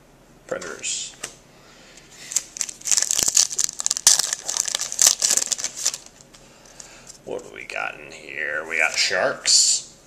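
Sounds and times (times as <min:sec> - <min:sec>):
foil wrapper tearing and crinkling: 0:02.3 - 0:06.2.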